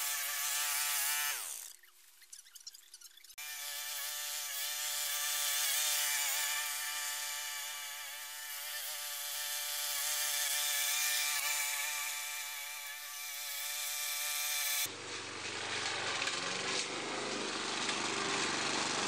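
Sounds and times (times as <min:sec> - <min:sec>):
lawn mower engine running: 0:14.8 - 0:19.0.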